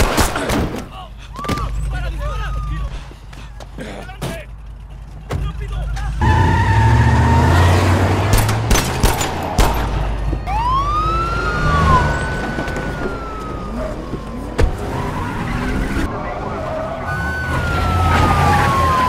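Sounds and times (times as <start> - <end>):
deep car engine rumble: 1.1 - 19.0
police siren wail: 1.4 - 3.2, 6.2 - 8.3, 9.0 - 19.0
sharp bangs: 7.8 - 10.4.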